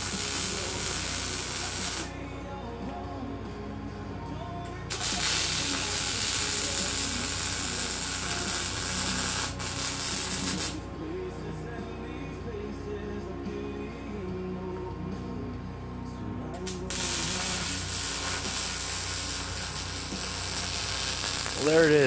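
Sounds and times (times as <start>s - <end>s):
welding arc hissing: 0.0s - 2.1s, 4.9s - 10.8s, 16.7s - 22.0s
background music: 0.0s - 22.0s.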